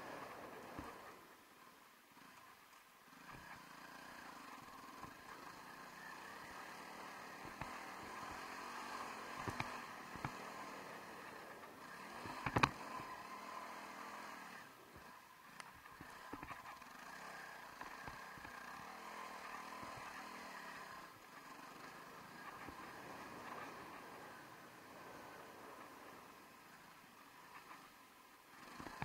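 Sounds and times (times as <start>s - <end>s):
motorcycle engine running: 3.0s - 26.0s.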